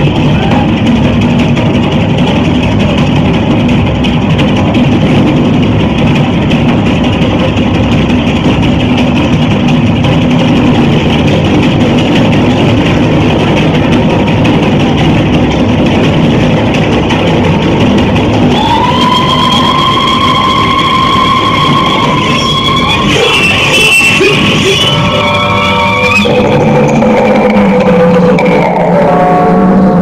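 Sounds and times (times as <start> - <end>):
low engine-like drone: 0.0 - 30.0.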